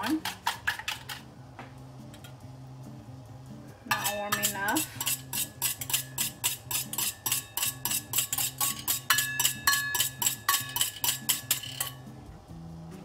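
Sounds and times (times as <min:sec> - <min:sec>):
wire whisk clinking against metal bowl: 0:03.9 - 0:12.1.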